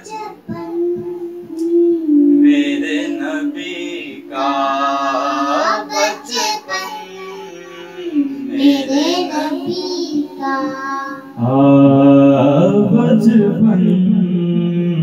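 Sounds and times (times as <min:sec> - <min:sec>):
girl singing into a microphone: 0:00.0 - 0:02.4, 0:05.7 - 0:11.4.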